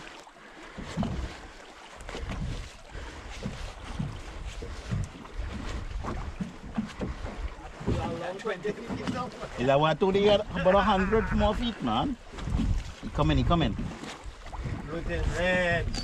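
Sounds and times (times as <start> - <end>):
water lapping against hull: 0.0 - 16.0
wind buffeting microphone: 2.1 - 16.0.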